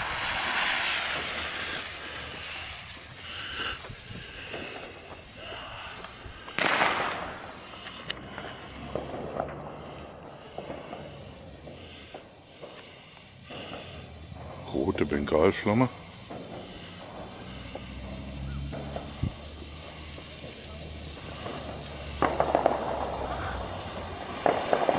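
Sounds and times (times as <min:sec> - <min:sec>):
firework fizzing and crackling: 0:00.0 - 0:24.9
firework fuse hissing: 0:00.0 - 0:24.9
firework whoosh: 0:00.0 - 0:24.9
sharp firework cracks: 0:00.0 - 0:24.9.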